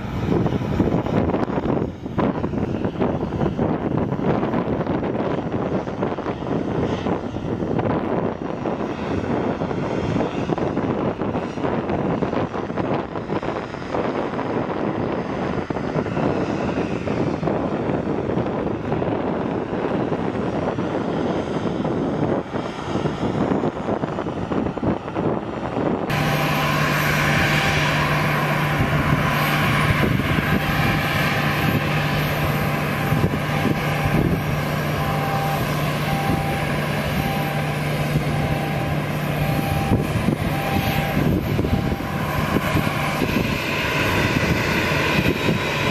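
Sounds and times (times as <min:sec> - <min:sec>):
jet engines at idle: 0:00.0 - 0:45.9
low hum: 0:00.0 - 0:45.9
thin high whine: 0:26.1 - 0:44.2.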